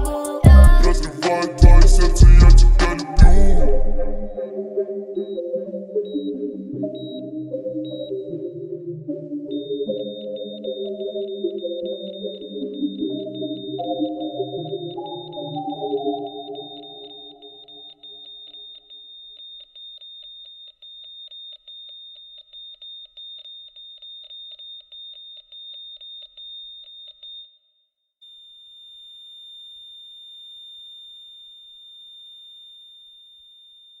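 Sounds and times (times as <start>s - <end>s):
low synth pad: 0.0s - 7.5s
pulsing synth tone: 0.0s - 19.4s
high ringing tone: 9.5s - 34.0s.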